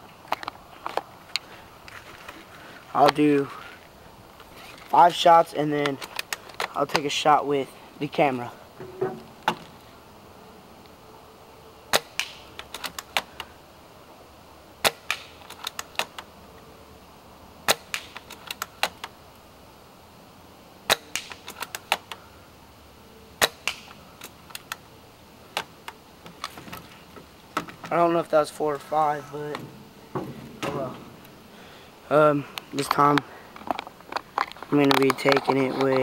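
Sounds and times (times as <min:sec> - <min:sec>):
airsoft rifle shot crack: 0:11.9 - 0:12.5, 0:14.8 - 0:15.3, 0:17.6 - 0:18.2.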